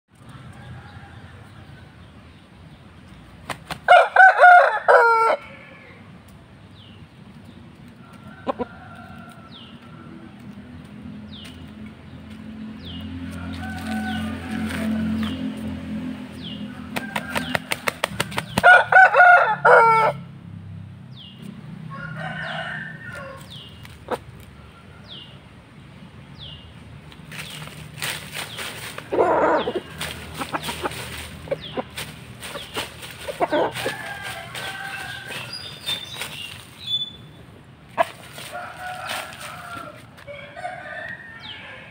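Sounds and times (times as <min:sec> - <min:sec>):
rooster crowing: 0:00.5 - 0:02.0, 0:03.9 - 0:06.0, 0:13.2 - 0:15.4, 0:16.7 - 0:20.2, 0:21.9 - 0:23.6, 0:33.4 - 0:36.2, 0:38.0 - 0:41.9
rooster wings flapping: 0:16.9 - 0:18.8.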